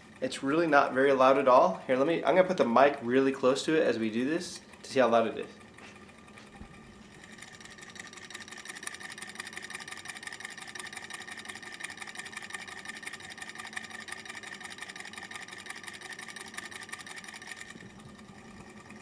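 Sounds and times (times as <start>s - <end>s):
flywheel whir: 0.0s - 19.0s
rapid mechanical ticking: 0.0s - 19.0s.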